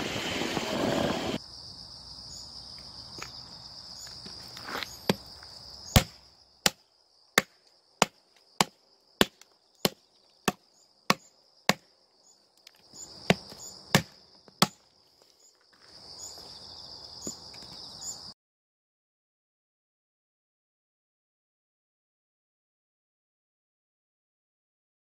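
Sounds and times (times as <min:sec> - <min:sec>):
heavy knife chopping wood: 0:05.9 - 0:06.8, 0:07.4 - 0:11.9, 0:13.2 - 0:14.8.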